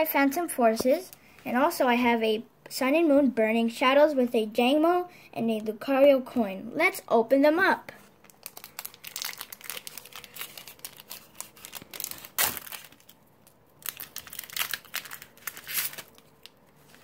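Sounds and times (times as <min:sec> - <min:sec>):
foil wrapper crinkling and tearing: 0:08.2 - 0:17.0.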